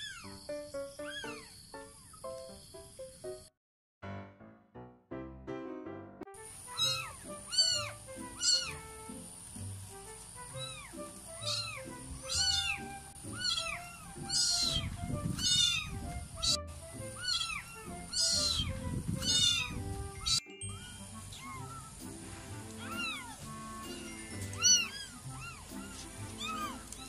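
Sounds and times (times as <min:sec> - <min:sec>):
background music: 0:00.0 - 0:27.0
kitten mewing: 0:06.7 - 0:08.8, 0:10.5 - 0:20.4, 0:22.8 - 0:24.0, 0:24.6 - 0:27.0.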